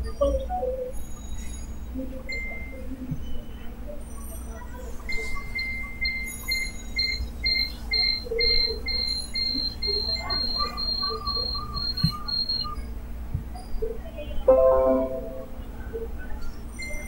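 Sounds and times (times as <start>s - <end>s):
high-pitched rhythmic chirping: 0.0s - 13.0s
low steady hum: 1.5s - 16.9s.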